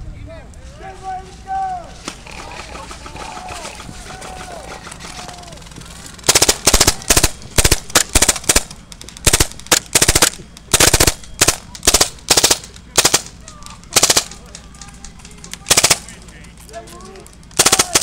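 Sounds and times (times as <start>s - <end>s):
airsoft pistol firing bursts: 6.2s - 14.6s, 15.6s - 16.1s, 17.6s - 18.0s.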